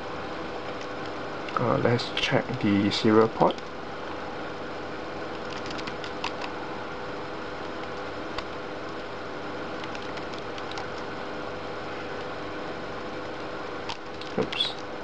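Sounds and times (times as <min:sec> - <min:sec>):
steady low hum: 0:00.0 - 0:15.0
keyboard keys clicking: 0:05.3 - 0:06.5, 0:09.8 - 0:11.0, 0:13.9 - 0:14.6.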